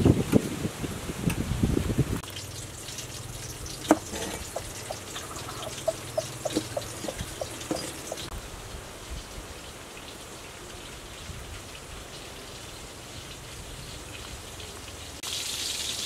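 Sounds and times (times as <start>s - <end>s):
water dripping: 2.2s - 8.3s
water sloshing: 2.4s - 8.3s.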